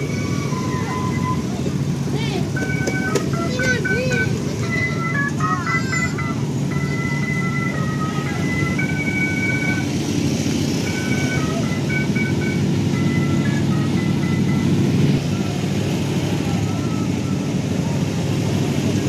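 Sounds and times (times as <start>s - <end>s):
simple melody of high notes: 0.0s - 18.0s.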